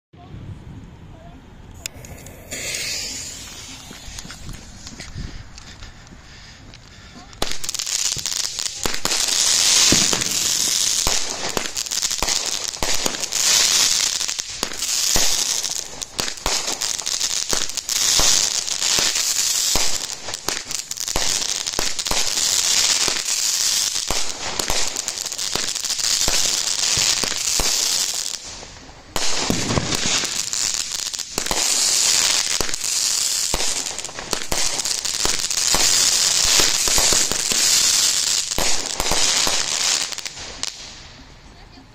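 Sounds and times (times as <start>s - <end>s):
firework bursts: 1.6s - 41.3s
dense firework crackle: 1.7s - 41.3s
firework launch thumps: 1.8s - 5.8s, 9.9s - 13.2s.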